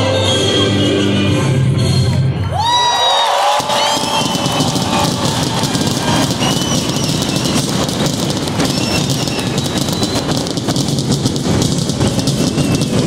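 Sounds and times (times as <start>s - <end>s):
stadium crowd roaring: 2.4s - 13.0s
fireworks crackling and popping: 3.4s - 13.0s
high firework whistles: 3.4s - 13.0s.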